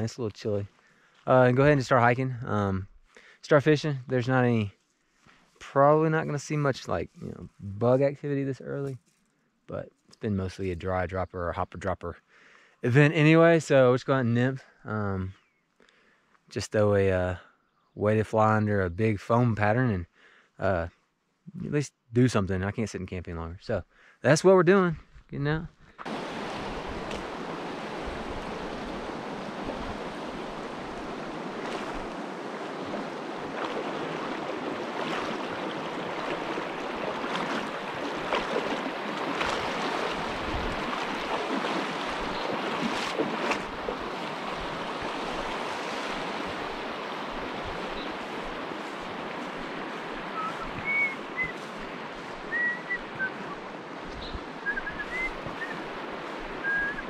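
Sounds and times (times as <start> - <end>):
stream flowing over riffles: 26.0 - 57.0
high whistled chirps: 50.3 - 51.6, 52.5 - 53.6, 54.2 - 55.8, 56.6 - 57.0.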